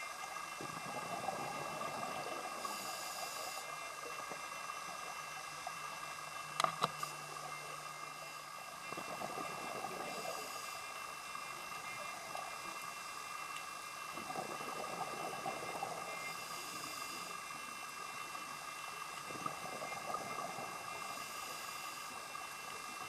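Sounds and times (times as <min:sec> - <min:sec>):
faint steady tones: 0:00.0 - 0:23.0
underwater hiss: 0:00.3 - 0:06.2, 0:08.5 - 0:23.0
diver's exhaled bubbles: 0:14.1 - 0:16.3.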